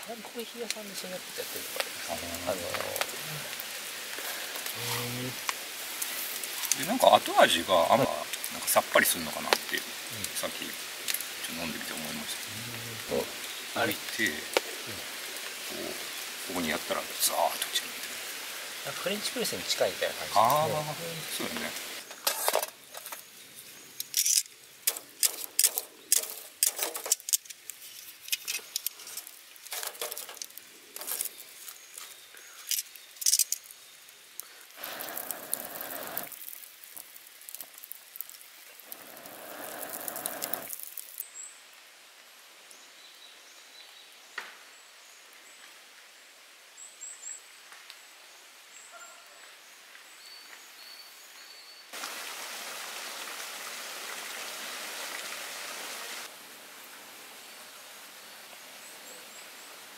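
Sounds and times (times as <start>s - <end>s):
rain hiss: 0.0s - 59.9s.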